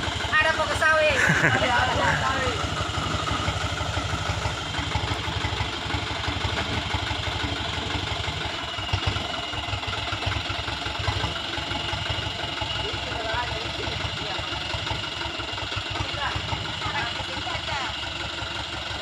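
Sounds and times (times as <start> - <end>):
diesel truck engine low revs: 0.0 - 19.0
truck clunk: 2.6 - 9.3.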